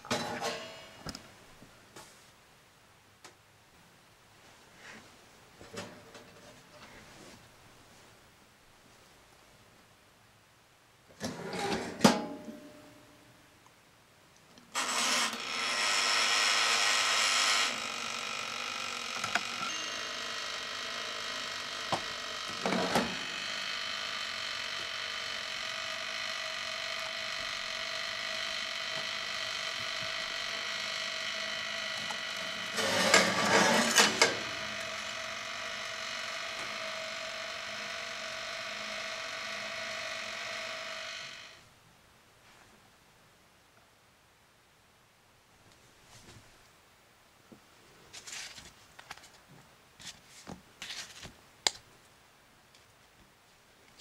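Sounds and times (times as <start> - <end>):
timer mechanical whir: 14.8 - 41.6.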